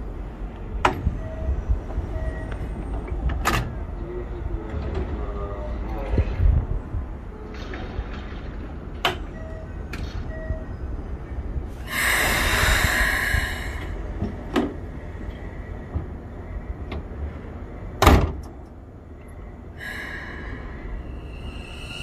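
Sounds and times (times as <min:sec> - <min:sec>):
train door hissing: 0:11.8 - 0:14.8
sharp bang of doors: 0:18.0 - 0:18.4
low rumble: 0:19.1 - 0:22.0.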